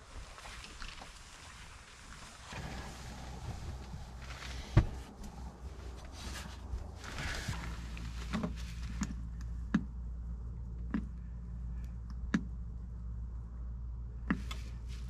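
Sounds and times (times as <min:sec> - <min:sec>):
rustling: 0:00.0 - 0:09.5
steady low hum: 0:00.0 - 0:15.0.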